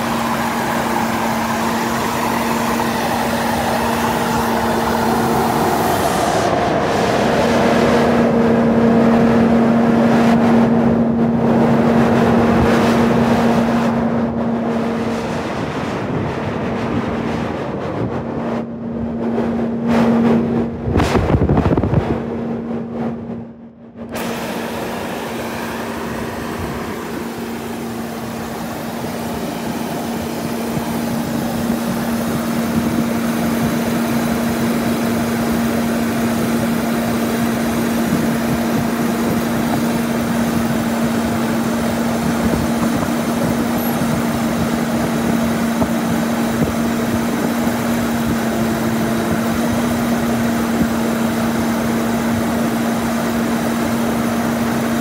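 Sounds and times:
diesel engine idling: 0.0 - 10.1, 24.1 - 52.1.

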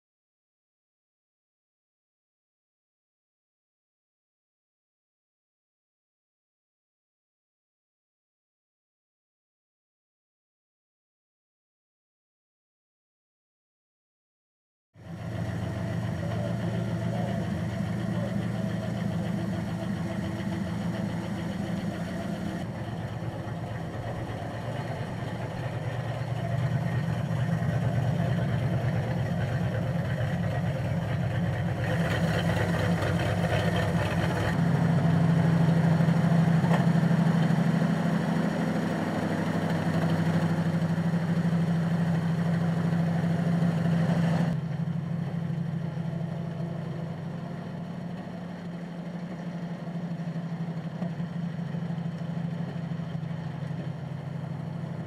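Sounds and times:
locomotive engine running: 15.0 - 55.0.

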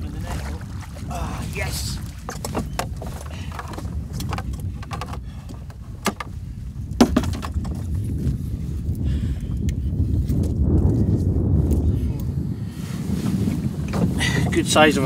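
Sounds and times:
wind rumble on microphone: 0.0 - 15.0
landing net knocking against boat: 2.2 - 6.4, 7.0 - 7.8.

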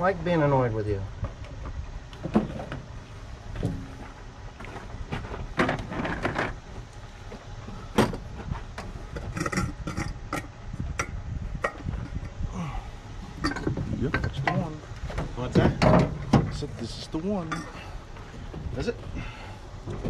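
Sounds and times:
metal engine parts clinking: 7.7 - 12.4, 13.3 - 19.2.

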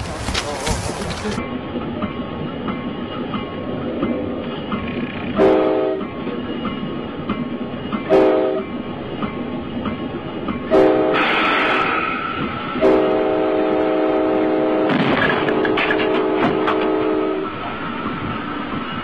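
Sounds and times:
train rumbling: 0.0 - 19.0
locomotive air horn: 5.4 - 6.1, 8.1 - 8.6, 10.7 - 11.4, 12.8 - 17.6.

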